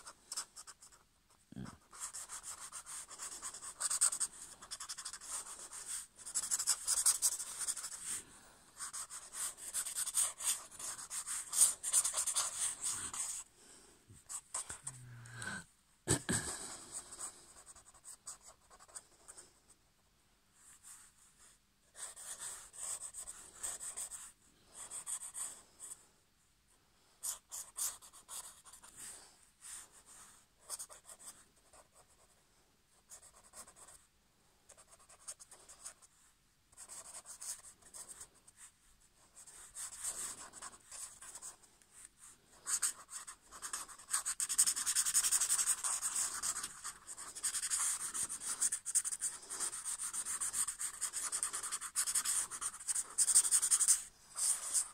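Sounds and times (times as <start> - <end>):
pen scribbling on paper: 0.0 - 1.0, 1.6 - 8.2, 8.8 - 13.4, 22.0 - 26.0, 27.2 - 28.9, 36.8 - 38.3, 39.2 - 41.6, 42.5 - 54.9.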